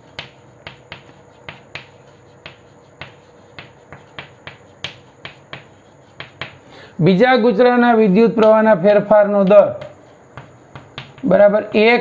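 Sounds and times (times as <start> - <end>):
chalk tapping on blackboard: 0.0 - 6.7, 8.4 - 8.7, 9.3 - 11.5.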